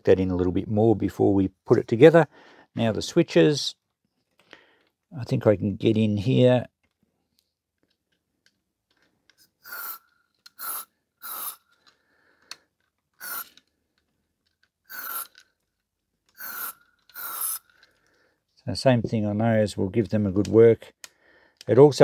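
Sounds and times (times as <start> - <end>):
aerosol spray hissing: 9.6 - 11.7, 13.2 - 13.5, 14.9 - 15.4, 16.4 - 17.7.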